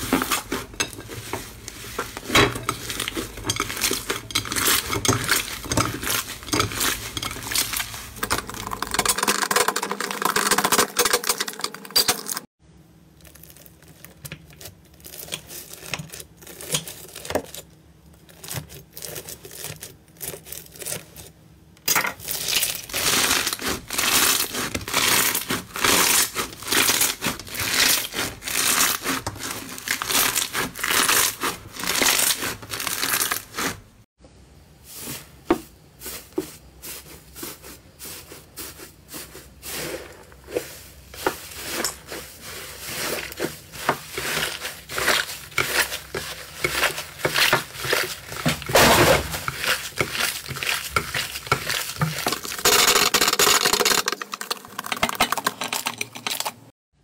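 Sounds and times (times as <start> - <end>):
slime crackling and popping: 13.1 - 17.6, 22.2 - 33.5.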